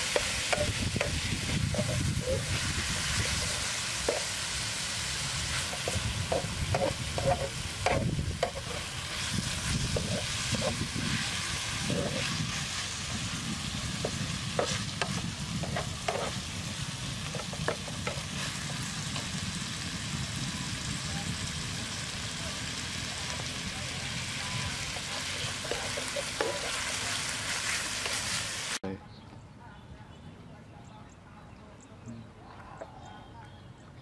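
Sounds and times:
utensil scraping a pan: 0:00.0 - 0:19.3, 0:24.6 - 0:28.5
food sizzling in a frying pan: 0:00.0 - 0:28.8.

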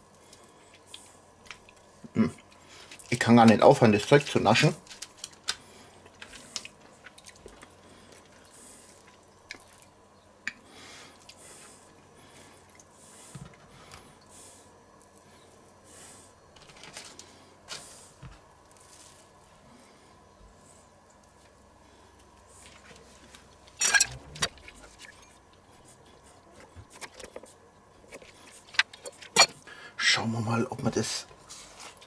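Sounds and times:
squishing of raw meat handling: 0:00.0 - 0:23.8
soft rustles: 0:16.6 - 0:19.6.

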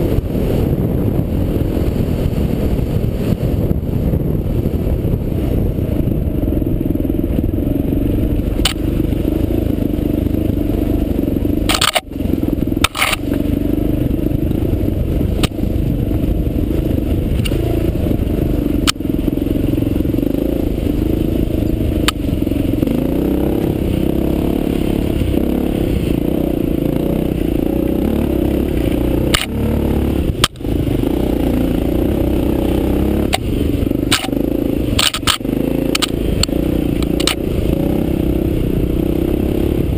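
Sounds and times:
motorcycle engine under load: 0:00.0 - 0:39.9
sharp clicks: 0:08.6 - 0:08.9, 0:11.7 - 0:12.1, 0:12.8 - 0:13.4, 0:18.8 - 0:19.0, 0:29.3 - 0:29.6, 0:34.1 - 0:37.4.

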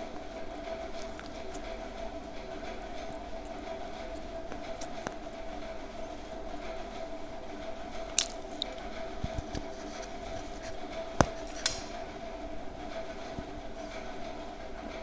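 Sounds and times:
steady background hum: 0:00.0 - 0:15.0
candy crunching between teeth: 0:08.1 - 0:08.8.

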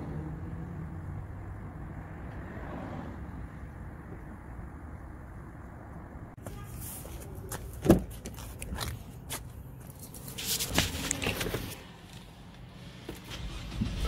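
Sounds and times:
car door opening: 0:07.8 - 0:08.2.

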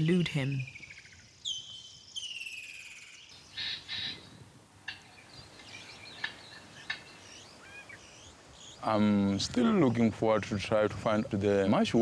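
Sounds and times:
birds whistling: 0:00.0 - 0:08.9
bird calls and chirps: 0:00.0 - 0:09.4.

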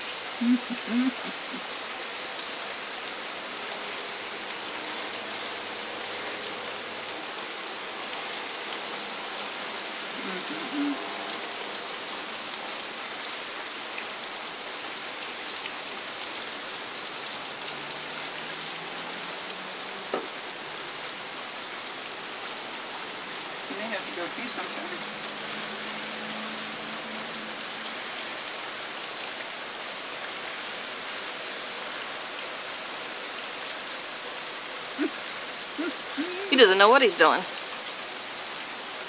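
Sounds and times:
heavy rain on grass: 0:00.0 - 0:39.0.

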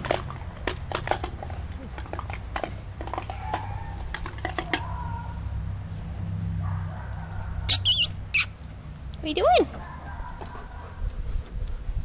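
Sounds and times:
puppy whining: 0:07.7 - 0:08.5
puppy yelp: 0:07.7 - 0:08.6.

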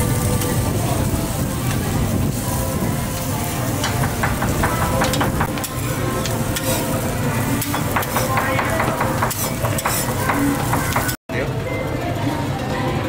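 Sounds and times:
food sizzling on griddle: 0:00.0 - 0:11.2
metal utensils scraping griddle: 0:03.7 - 0:11.2.

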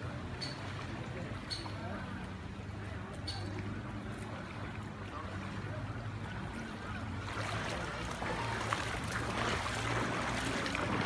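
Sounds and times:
floodwater splashing: 0:00.0 - 0:11.0.

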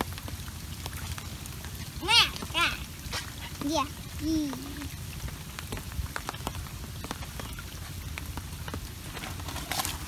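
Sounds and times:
rain pattering on water: 0:00.0 - 0:10.0.

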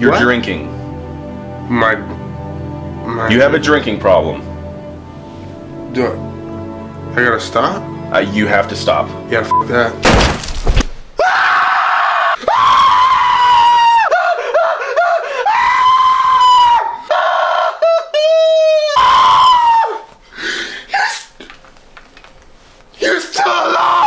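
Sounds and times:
man screaming and wailing: 0:11.2 - 0:20.1, 0:20.9 - 0:21.3, 0:23.0 - 0:24.0
man sobbing: 0:13.2 - 0:21.6.

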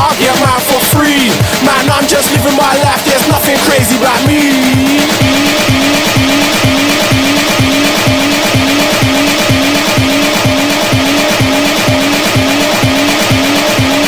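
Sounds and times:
kick drum: 0:00.0 - 0:14.0
pulsing synth bass: 0:00.0 - 0:14.0.

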